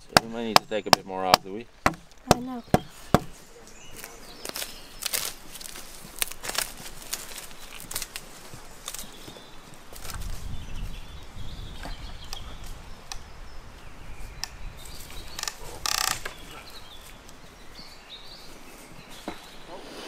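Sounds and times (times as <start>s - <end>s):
wooden sticks knocking and creaking: 0.0s - 3.4s, 15.4s - 16.4s
rustling against reed thatch: 0.0s - 20.0s.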